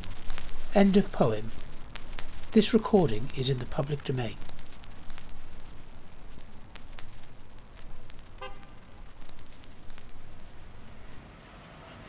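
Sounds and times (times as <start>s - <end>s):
steady hiss: 0.0s - 12.0s
traffic noise: 4.2s - 12.0s
car horn toot: 8.4s - 8.8s.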